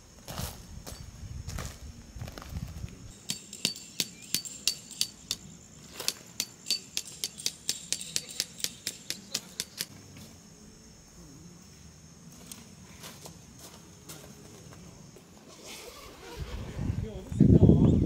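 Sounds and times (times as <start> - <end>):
hammer striking tent stake: 3.1 - 9.9.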